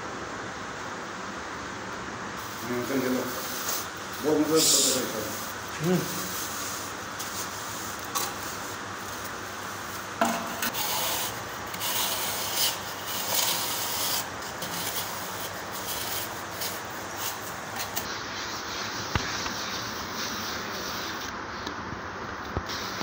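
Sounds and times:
wooden straight edge scraping plaster: 10.2s - 18.1s.

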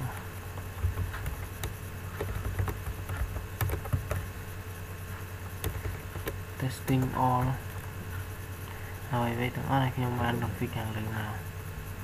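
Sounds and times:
low steady hum: 0.0s - 12.0s
keyboard typing clicks: 0.8s - 4.3s, 5.6s - 7.6s.

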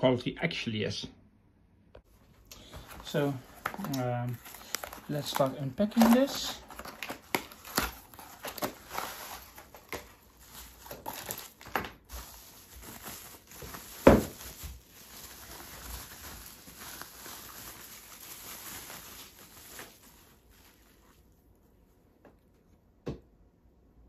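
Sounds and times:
plastic packaging crinkling: 2.2s - 21.4s.

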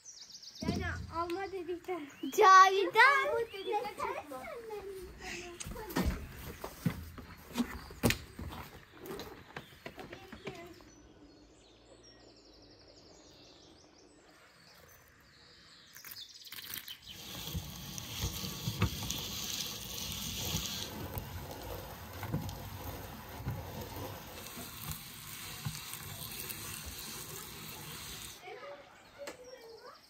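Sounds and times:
birds chirping: 0.0s - 30.0s
walnuts crunching in grinder: 15.9s - 28.4s.

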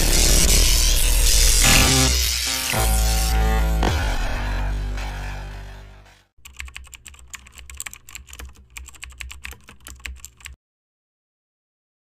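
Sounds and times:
electronic intro music: 0.0s - 6.3s
computer keyboard typing: 6.4s - 10.6s.

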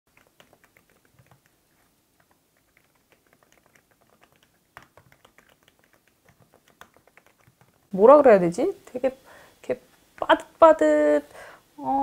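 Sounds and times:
soft keyboard typing: 0.1s - 7.9s.

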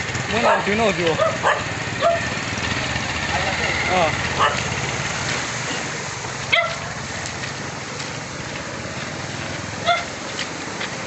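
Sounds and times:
motorcycle engines idling: 0.0s - 11.0s
water washing: 0.0s - 11.0s.

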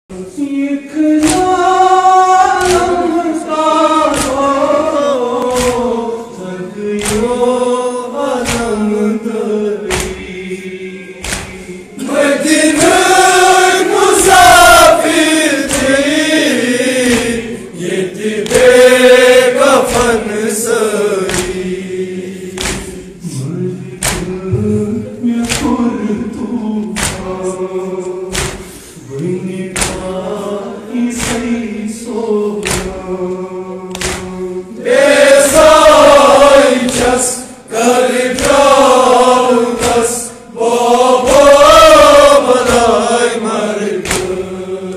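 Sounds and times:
men chanting into a microphone: 0.1s - 44.9s
sharp beats: 21.2s - 26.4s.

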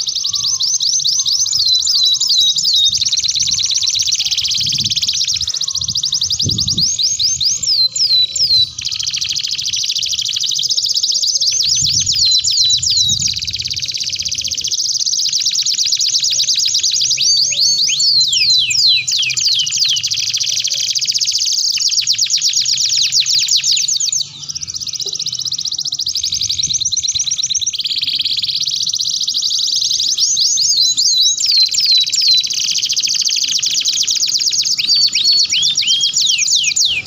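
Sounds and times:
canary singing trills: 0.0s - 37.0s.

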